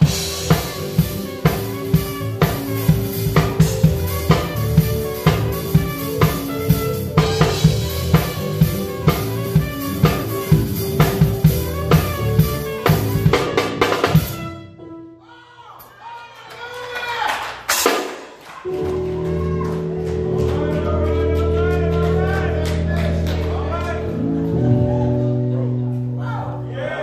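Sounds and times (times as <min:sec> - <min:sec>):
drum kit beat: 0:00.0 - 0:14.7, 0:17.6 - 0:24.4
live band music: 0:00.0 - 0:15.2, 0:17.5 - 0:27.0.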